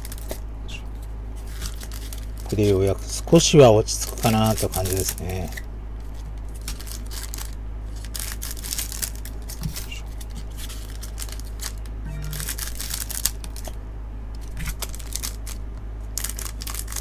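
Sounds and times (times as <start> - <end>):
wrapper crinkling and tearing: 0.0 - 0.4, 1.4 - 3.1, 3.9 - 13.8, 14.4 - 17.0
low hum: 11.0 - 16.2.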